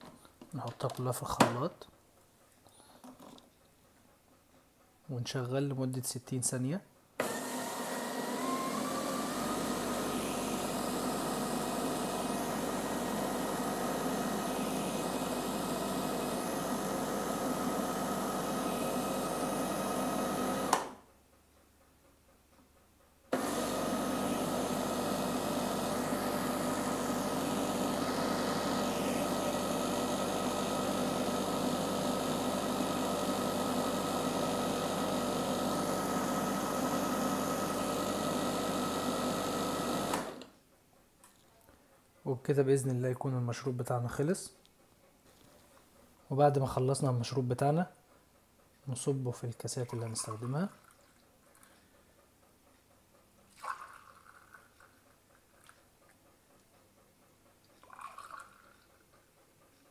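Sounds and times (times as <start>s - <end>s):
blender motor running: 7.2s - 21.0s, 23.4s - 40.5s.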